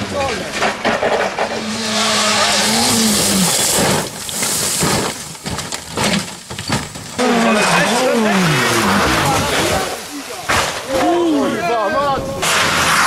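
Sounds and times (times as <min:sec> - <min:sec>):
knocks and clattering: 0:00.3 - 0:01.8, 0:02.8 - 0:11.1
rally car engine at high revs: 0:01.3 - 0:04.1, 0:07.2 - 0:10.0
spraying gravel hiss: 0:01.6 - 0:05.5.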